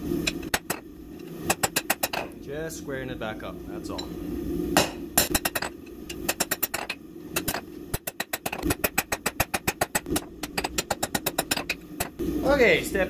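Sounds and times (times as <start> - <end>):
hammer striking metal on anvil: 4.8 - 12.2.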